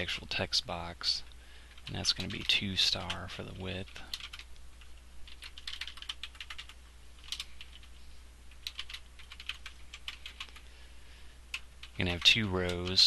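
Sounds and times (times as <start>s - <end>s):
steady low hum: 0.0s - 13.0s
keyboard typing: 1.7s - 3.2s, 3.9s - 10.7s, 11.5s - 13.0s.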